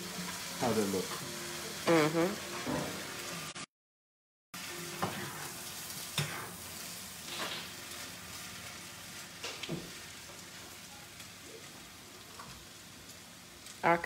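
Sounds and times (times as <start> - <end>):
rice sizzling in skillet: 0.0 - 3.6, 4.6 - 14.0
spatula scraping pan: 5.0 - 6.7.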